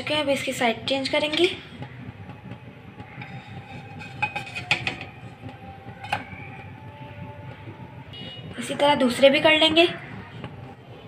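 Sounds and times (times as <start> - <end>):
spatula scraping frying pan: 3.1 - 5.2.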